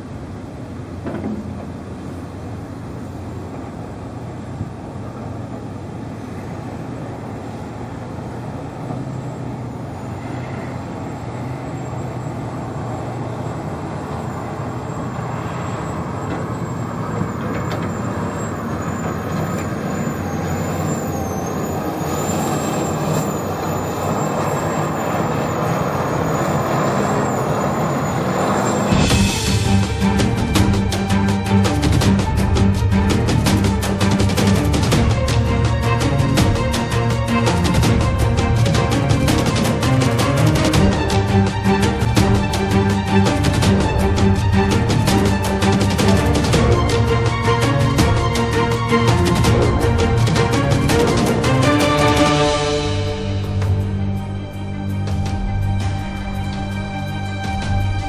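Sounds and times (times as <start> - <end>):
excavator engines rumbling: 0.0 - 58.0
thin high wavering whine: 2.0 - 31.6.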